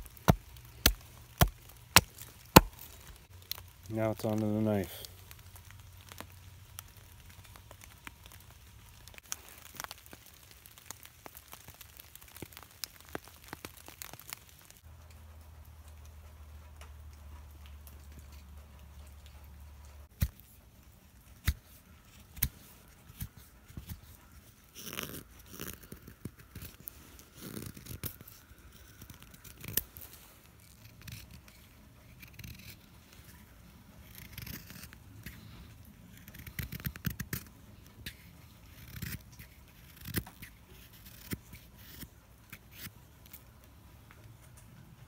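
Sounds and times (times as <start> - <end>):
knife slicing and scraping wood: 0.0 - 3.6, 21.2 - 43.5.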